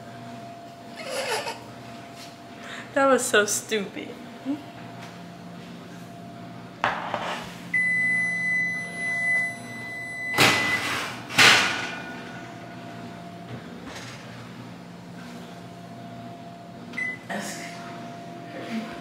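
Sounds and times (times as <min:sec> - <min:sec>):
long high electronic beep: 0:07.8 - 0:10.9.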